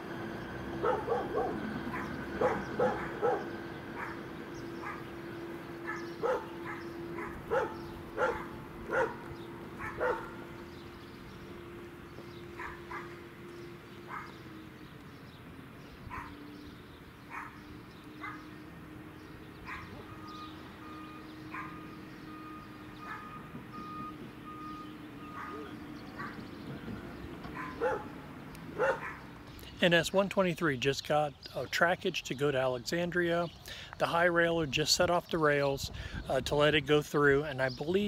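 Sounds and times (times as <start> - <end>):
dog barking: 0.8 - 4.2, 5.9 - 9.2, 9.8 - 10.4, 12.6 - 13.2, 14.1 - 14.4, 16.1 - 16.4, 17.3 - 17.6, 18.2 - 18.5, 19.7 - 20.0, 21.5 - 21.8, 23.0 - 23.3, 25.3 - 26.4, 27.6 - 28.1, 28.8 - 29.2.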